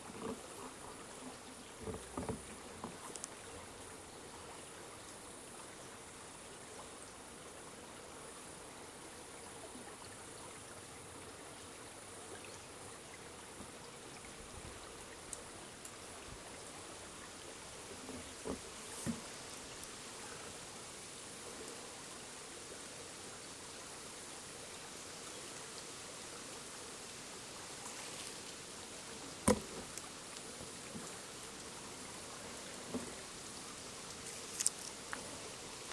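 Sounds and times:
stream flowing: 0.0 - 35.9
faint ticks: 1.8 - 3.4, 13.6 - 16.1, 18.1 - 20.0, 34.0 - 35.9.

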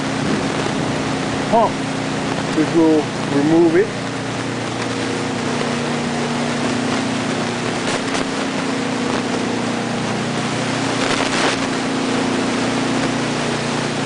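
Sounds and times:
sump pumps humming and hissing: 0.0 - 14.0.

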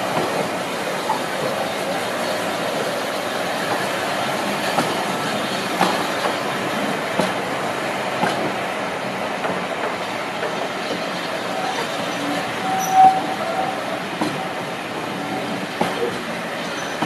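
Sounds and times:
train rumble: 0.0 - 17.0
train wheels knocking over rail joints: 4.6 - 7.5, 14.1 - 14.6.

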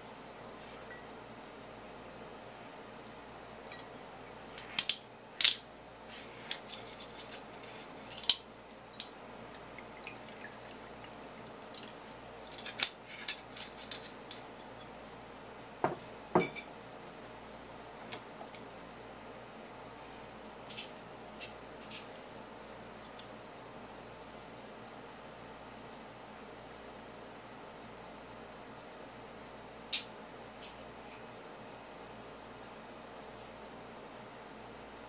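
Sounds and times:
sake pouring: 9.6 - 12.0
ceramic clinks and knocks on wood: 15.8 - 16.7.

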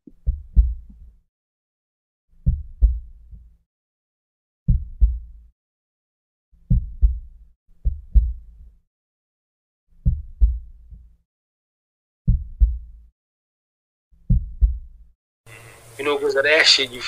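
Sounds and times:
heartbeat double thumps: 0.0 - 1.2, 2.4 - 3.6, 4.7 - 5.5, 6.6 - 8.8, 10.0 - 11.2, 12.3 - 13.1, 14.2 - 15.1.

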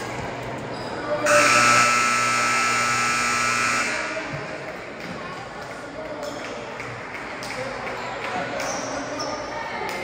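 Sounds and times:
scoreboard horn buzz: 1.3 - 4.4.

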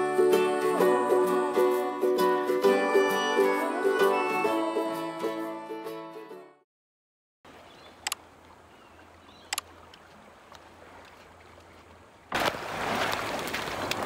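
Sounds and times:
water lapping: 7.5 - 14.0.

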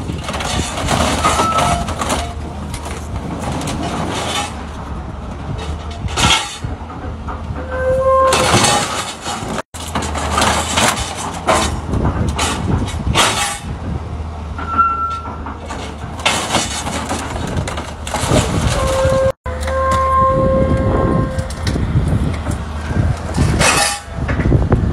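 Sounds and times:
excavator diesel engine running: 0.0 - 24.9
sheet metal crunching and scraping: 0.0 - 24.9
short metal squeals: 0.2 - 2.4, 7.6 - 9.6, 14.6 - 15.4, 18.1 - 21.6.

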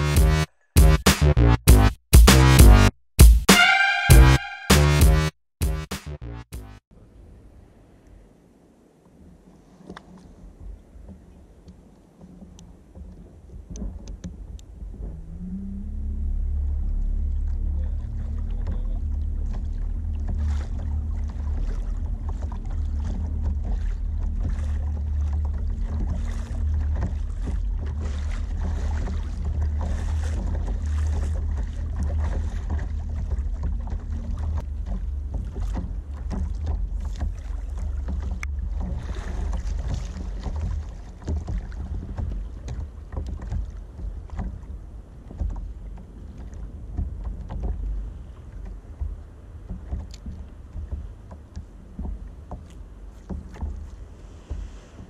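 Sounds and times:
water splashing against hull: 6.6 - 55.0
wind rumble on microphone: 6.9 - 55.0
rising hum: 14.8 - 27.8.

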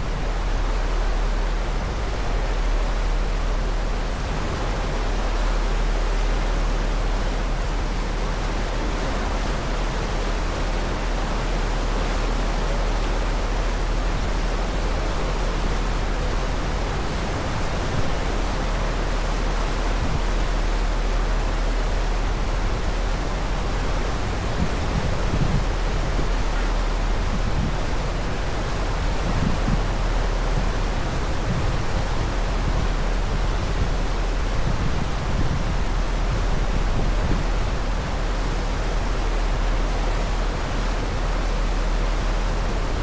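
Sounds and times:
churning wake water: 0.0 - 43.0
low steady drone: 0.0 - 43.0
wind on microphone: 0.0 - 43.0.

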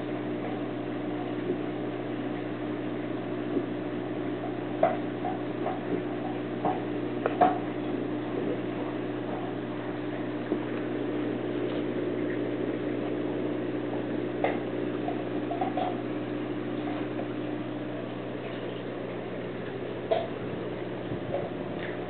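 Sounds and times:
aquarium air bubbles: 0.0 - 22.0
low hum: 0.0 - 22.0.

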